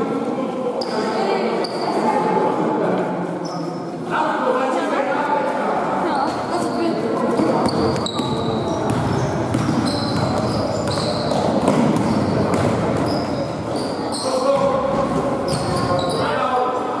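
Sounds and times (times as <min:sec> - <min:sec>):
players' voices: 0:00.0 - 0:17.0
sneaker squeaks: 0:00.8 - 0:02.1, 0:06.1 - 0:16.7
basketball bouncing on court: 0:07.4 - 0:13.4.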